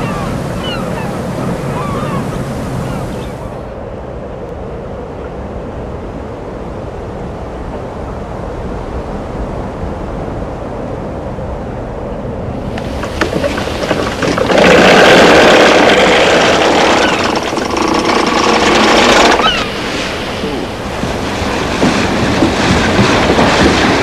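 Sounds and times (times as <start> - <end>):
sea waves: 0.0 - 3.8, 12.3 - 24.0
wind: 0.0 - 24.0.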